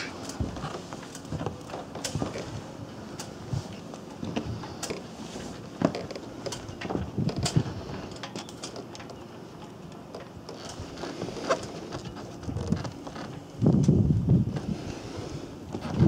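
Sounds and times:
footsteps on fibreglass deck: 0.0s - 8.0s.

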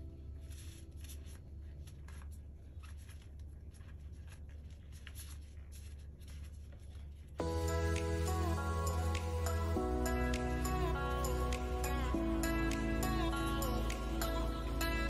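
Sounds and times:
plastic gloves rustling: 0.0s - 7.5s
low steady hum: 0.0s - 15.0s.

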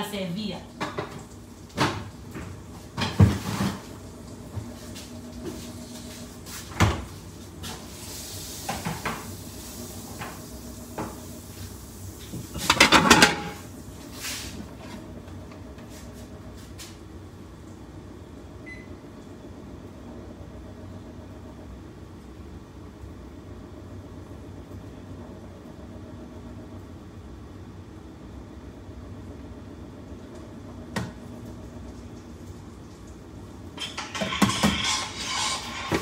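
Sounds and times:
cupboard doors and utensils clacking: 12.6s - 13.6s, 33.8s - 36.0s.

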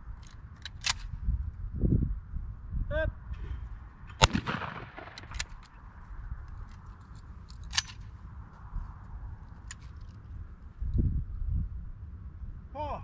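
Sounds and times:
steady low rumble: 0.0s - 12.8s
faint sharp cracks: 4.1s - 5.8s
shotgun shot with echo: 4.2s - 5.5s.

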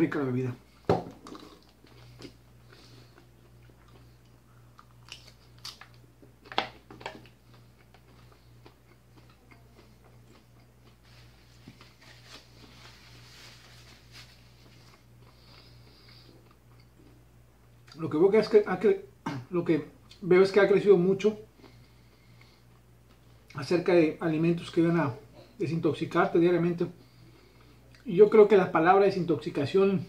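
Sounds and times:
chewing and crunching salad: 1.2s - 18.0s, 21.5s - 23.6s.

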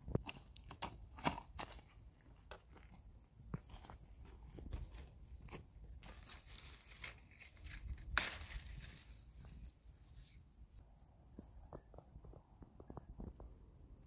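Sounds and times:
leaves rustling: 4.8s - 10.8s.

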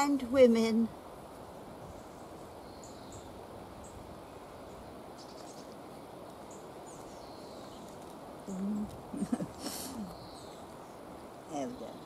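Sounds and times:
low outdoor hiss: 0.0s - 12.0s
small birds chirping and whistling: 1.9s - 4.0s, 4.6s - 5.8s, 6.4s - 12.0s
person humming: 8.5s - 10.1s.

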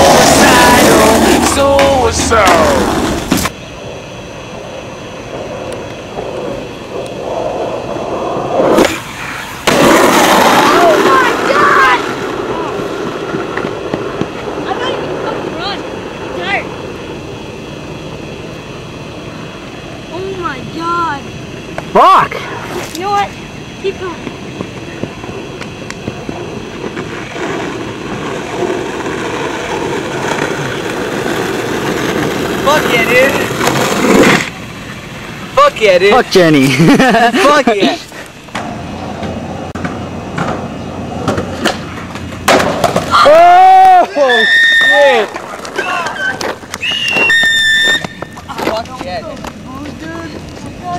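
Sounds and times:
skateboard wheels rolling: 0.0s - 50.9s
skateboard knock: 41.2s - 43.1s.

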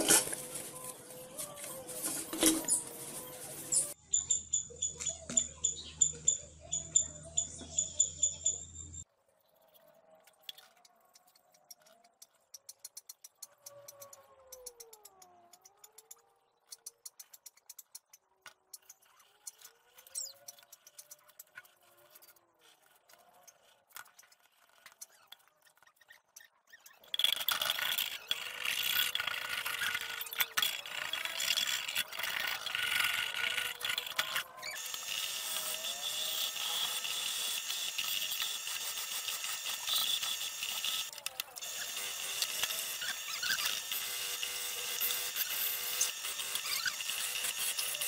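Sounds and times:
wire wheel scraping metal: 0.0s - 4.0s, 26.7s - 41.8s.

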